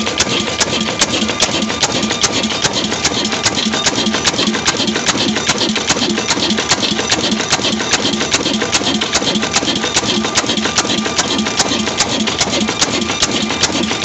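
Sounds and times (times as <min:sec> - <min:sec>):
diesel engine running: 0:00.0 - 0:14.0
fast clatter of sharp ticks: 0:00.0 - 0:14.0.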